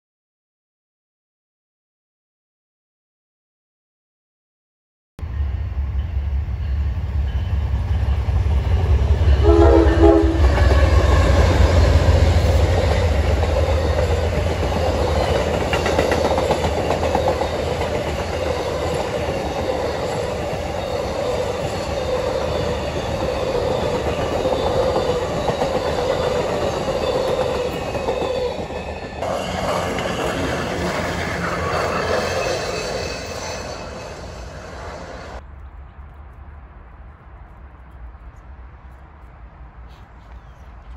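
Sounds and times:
locomotive rumble: 0:05.4 - 0:35.9
train cars clattering: 0:06.0 - 0:35.4
train horn blast: 0:09.2 - 0:11.7.

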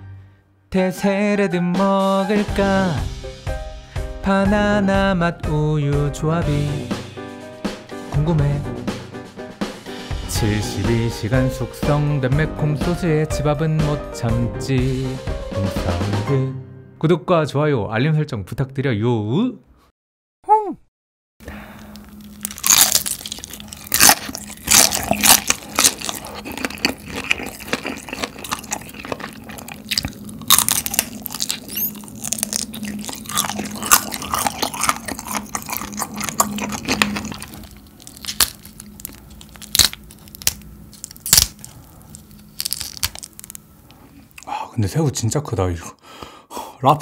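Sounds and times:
wet sticky chewing: 0:21.8 - 0:43.6
crunchy bites of fried chicken: 0:21.8 - 0:43.7.

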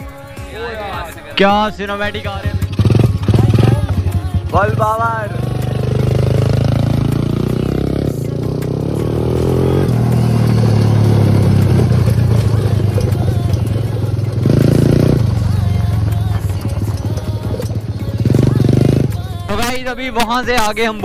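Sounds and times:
small engine at high revs: 0:02.5 - 0:19.2.

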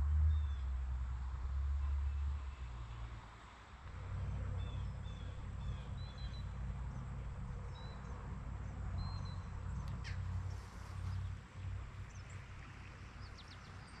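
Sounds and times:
small birds chirping: 0:12.0 - 0:14.0.

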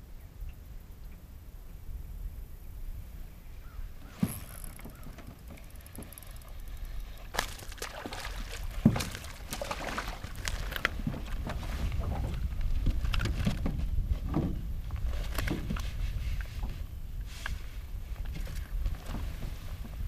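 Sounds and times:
fish splashing at water surface: 0:07.3 - 0:10.7.

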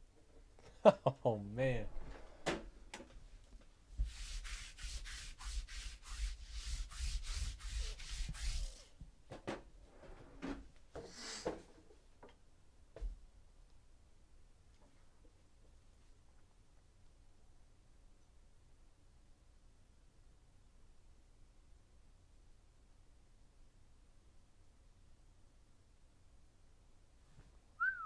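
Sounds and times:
cards rubbing and sliding: 0:04.1 - 0:08.9.

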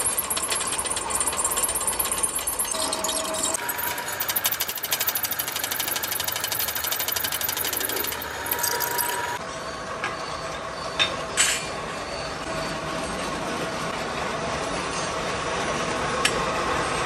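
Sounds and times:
drill press rhythmic chatter: 0:00.0 - 0:09.4
machine running steadily: 0:00.0 - 0:17.0.

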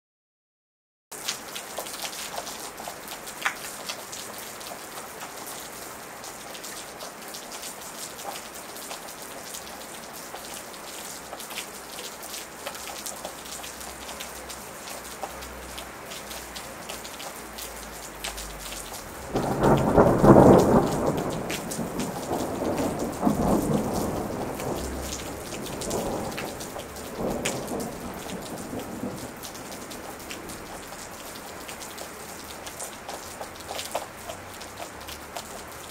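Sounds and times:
sharp raindrops: 0:01.1 - 0:35.9
steady rain: 0:01.1 - 0:35.9
thunder rumbling: 0:19.0 - 0:30.9.

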